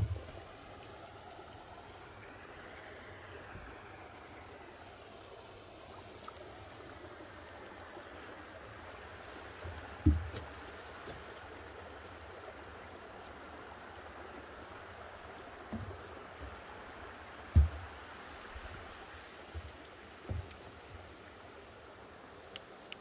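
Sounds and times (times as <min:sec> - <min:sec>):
creek water running: 0:00.0 - 0:23.0
footsteps on wooden footbridge: 0:09.7 - 0:10.5, 0:15.6 - 0:16.7, 0:17.5 - 0:21.1.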